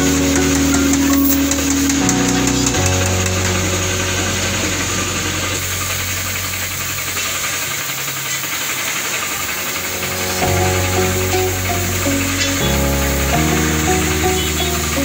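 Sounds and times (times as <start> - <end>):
background music: 0.0 - 7.0, 9.5 - 15.0.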